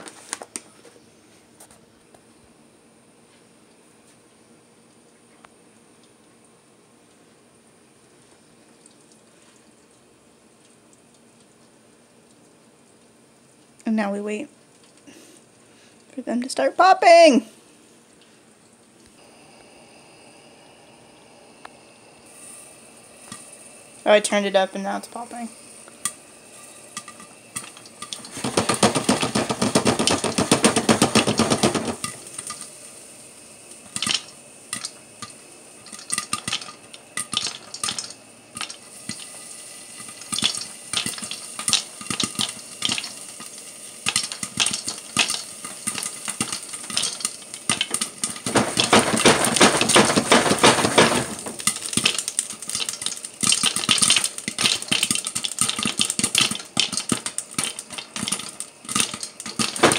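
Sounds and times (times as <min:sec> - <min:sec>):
popcorn popping: 0:21.6 - 0:59.9
dense clattering: 0:28.2 - 0:32.0, 0:48.4 - 0:51.6, 0:59.6 - 0:59.9.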